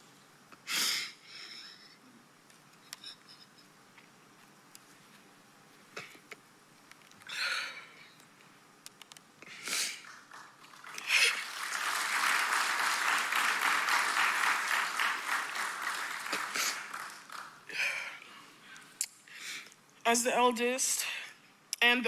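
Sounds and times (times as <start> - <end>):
audience applause: 10.0 - 18.1.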